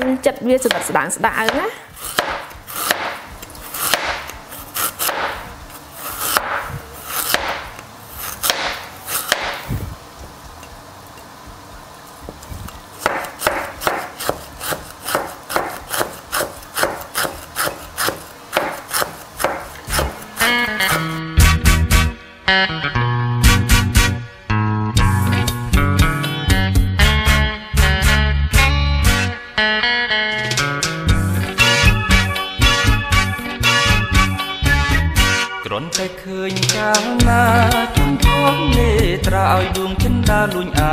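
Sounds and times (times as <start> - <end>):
cleaver chopping on plastic board: 0.7 - 5.4, 6.2 - 9.6, 13.0 - 21.0.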